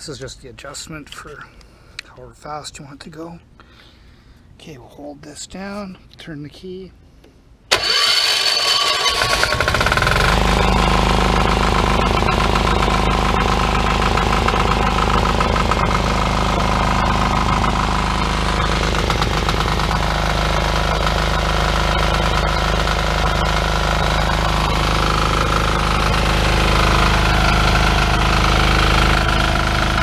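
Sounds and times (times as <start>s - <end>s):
diesel engine running: 7.7s - 30.0s
starter motor cranking: 7.7s - 30.0s.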